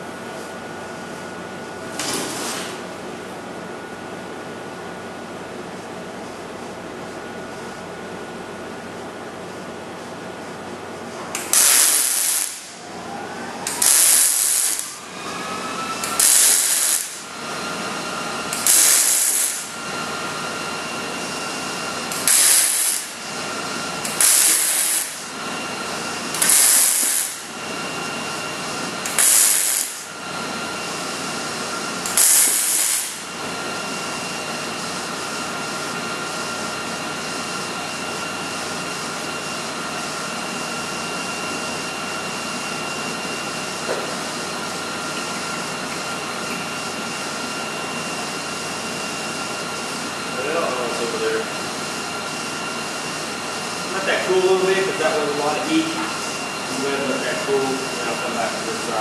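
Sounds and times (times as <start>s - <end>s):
welder arc crackle: 11.3s - 12.8s, 13.7s - 15.0s, 16.0s - 17.3s, 18.5s - 19.8s, 22.1s - 23.2s, 24.0s - 25.2s, 26.3s - 27.5s, 29.1s - 30.1s, 32.0s - 33.3s.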